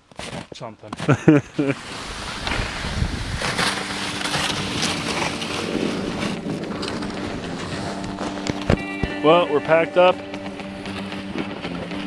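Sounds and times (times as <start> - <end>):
footsteps crunching in snow: 0.0 - 9.2
plastic sled sliding over snow: 0.0 - 9.2.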